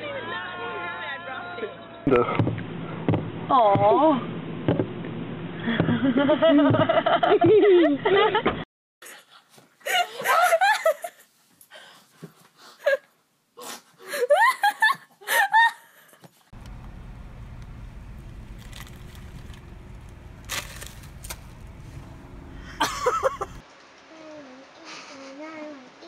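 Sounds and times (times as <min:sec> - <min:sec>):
people laughing: 0:05.7 - 0:08.5, 0:22.6 - 0:23.6
car cabin rumble: 0:16.6 - 0:23.6.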